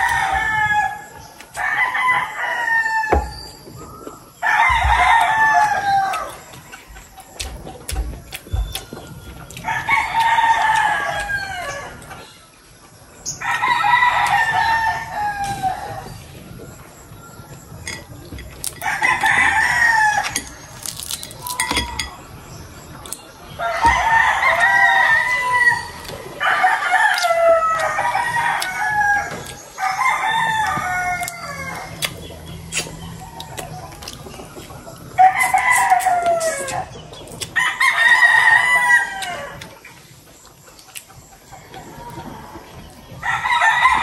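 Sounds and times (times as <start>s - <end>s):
rooster crowing: 0.0s - 3.5s, 4.4s - 6.5s, 9.6s - 12.0s, 13.3s - 16.2s, 23.6s - 32.0s, 37.6s - 39.7s, 43.2s - 44.0s.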